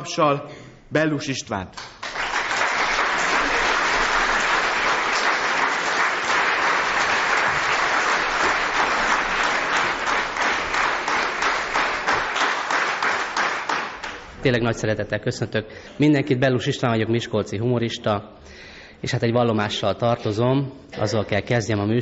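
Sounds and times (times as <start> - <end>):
audience applauding: 1.8 - 14.3.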